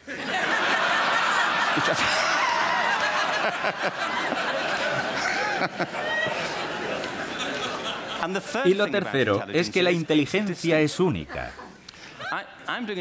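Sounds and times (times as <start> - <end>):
large audience laughing: 0.0 - 9.0.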